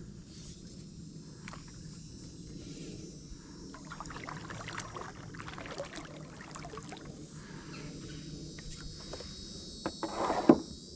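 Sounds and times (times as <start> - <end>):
water dripping and lapping: 1.4 - 2.0, 3.7 - 9.0
paddle strokes in water: 3.8 - 9.0.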